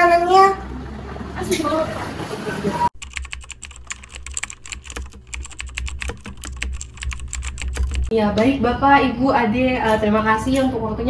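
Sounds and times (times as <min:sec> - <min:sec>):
keyboard typing clicks: 0:03.0 - 0:08.1.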